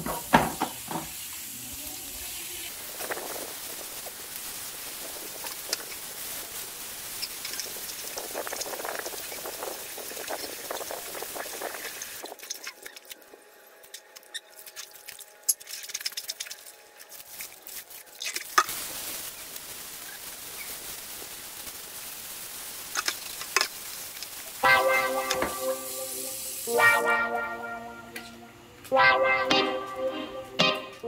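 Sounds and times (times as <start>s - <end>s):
water streaming and dripping: 0.0s - 26.8s
hose running into basin: 2.7s - 19.3s, 22.9s - 27.2s
water sloshing: 12.4s - 18.5s.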